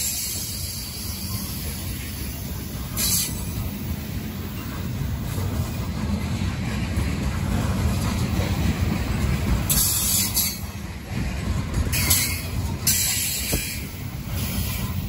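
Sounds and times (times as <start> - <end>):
train wheels rumbling on rail: 0.0 - 15.0
high hissing wheel squeal: 3.0 - 3.5.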